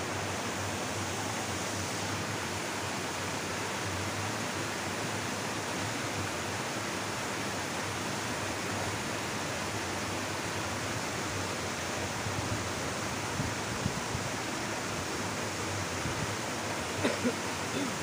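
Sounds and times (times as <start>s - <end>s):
stream water rushing over drop: 0.0s - 18.0s.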